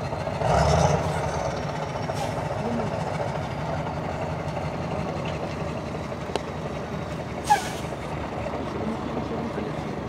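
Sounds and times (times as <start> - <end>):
diesel truck engine running: 0.0 - 10.0.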